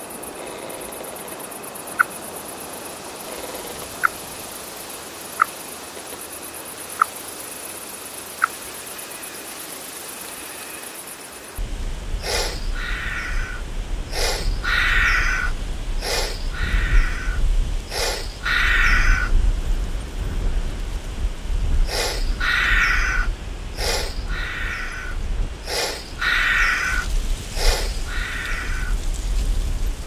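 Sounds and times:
steady low rumble: 11.6 - 30.0
rasping animal calls: 12.2 - 19.3, 21.9 - 28.9.

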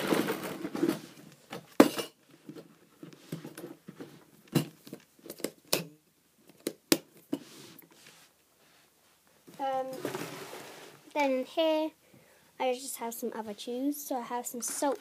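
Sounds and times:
packets and containers handled: 0.0 - 8.0, 9.5 - 11.2, 14.5 - 15.0.

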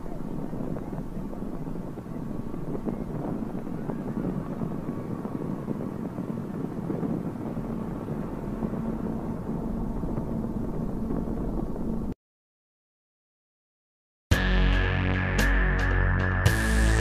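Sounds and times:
engine drone: 0.0 - 12.2.

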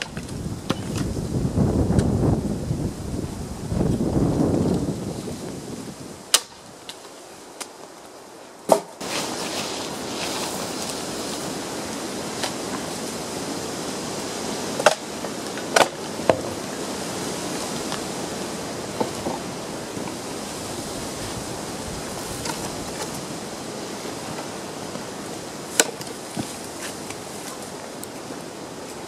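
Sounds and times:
wind on microphone: 0.0 - 6.8, 9.0 - 28.8
dry branches snapping: 6.3 - 7.9, 14.8 - 16.4, 25.7 - 28.2.

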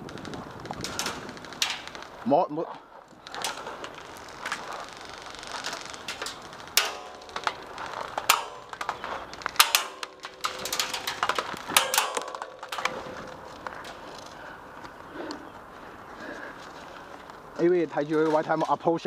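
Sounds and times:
metallic ringing: 6.2 - 14.2.

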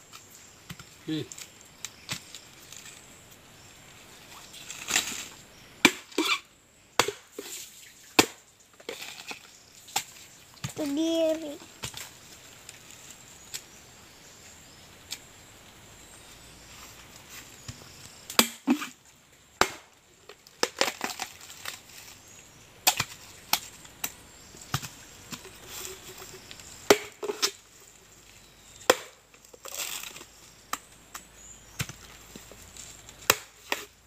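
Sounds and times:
machete chopping coconut husk: 5.8 - 6.4, 7.0 - 7.6, 8.2 - 8.4, 17.6 - 18.9, 19.6 - 19.9, 22.8 - 25.5, 26.4 - 27.6, 28.8 - 30.1, 33.2 - 34.0.

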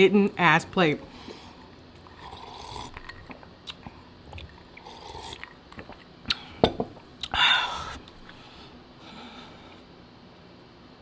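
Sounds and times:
chewing: 1.6 - 6.4
sipping iced drink: 2.0 - 6.6.

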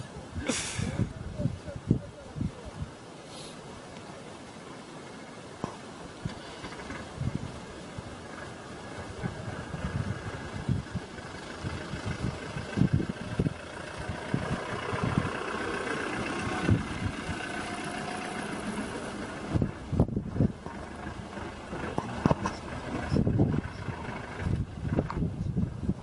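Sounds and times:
vehicle engine idling: 6.3 - 26.0.

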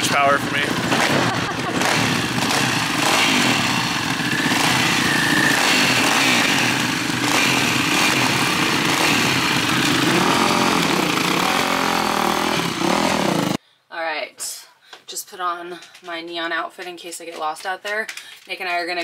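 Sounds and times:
dirt bike engines revving: 0.0 - 13.6.

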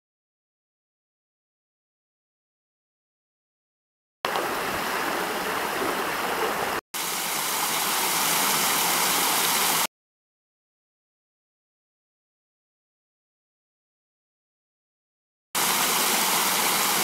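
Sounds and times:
water rushing over rocks: 4.3 - 9.9, 15.6 - 17.0
waterfall splashing into pool: 4.3 - 9.9, 15.6 - 17.0.

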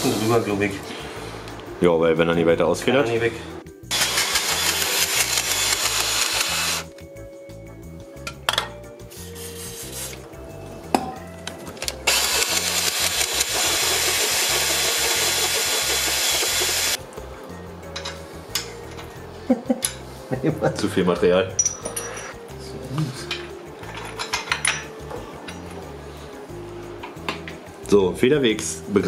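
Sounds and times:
cordless drill drilling: 3.9 - 6.9, 12.1 - 17.0.

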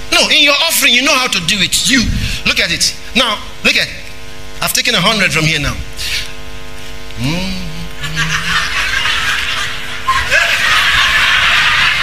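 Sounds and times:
short vocal sound: 7.2 - 8.5
crowd laughing: 8.0 - 12.0.

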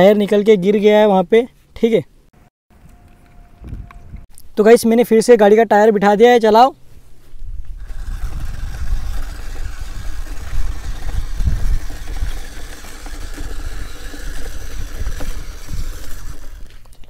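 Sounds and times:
electric motors whining: 7.6 - 17.0
rc car rumbling over dirt: 7.6 - 17.0.

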